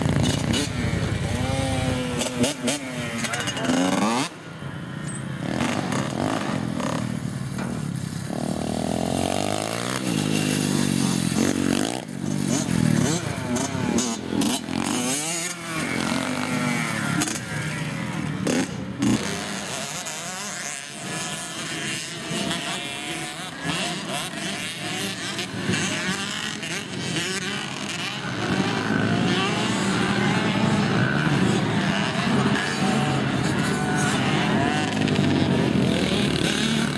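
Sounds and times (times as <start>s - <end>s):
dirt bike engines revving: 0.0s - 36.9s.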